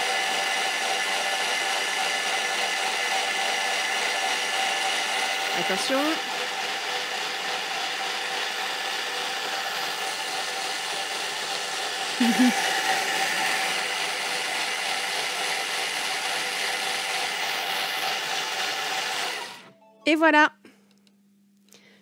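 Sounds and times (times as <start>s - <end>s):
blender blade whirring: 0.0s - 19.7s.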